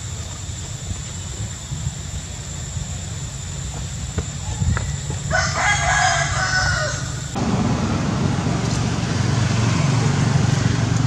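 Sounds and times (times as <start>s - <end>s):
steady low rumble: 7.0s - 11.0s.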